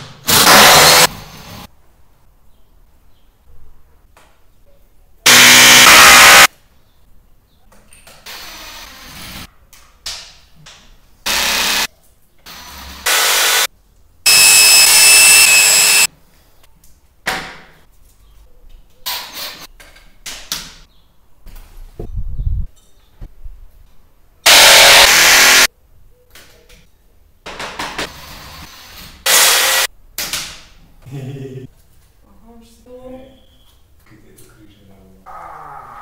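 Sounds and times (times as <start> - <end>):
electric drill drilling into ceiling: 0.3 - 1.1, 5.3 - 6.5, 11.3 - 11.9, 12.5 - 13.7, 14.3 - 16.1, 24.5 - 25.7, 29.3 - 29.9.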